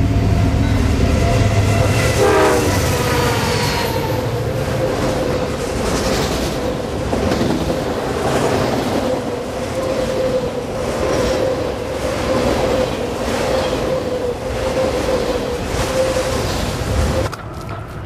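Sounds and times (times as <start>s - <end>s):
freight train wheels rumbling: 0.0s - 18.0s.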